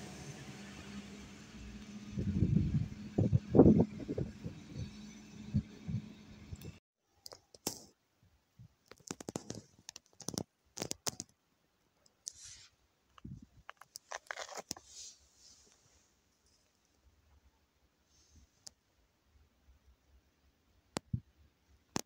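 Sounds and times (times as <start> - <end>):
faint clicks and crackles: 8.8 - 11.4.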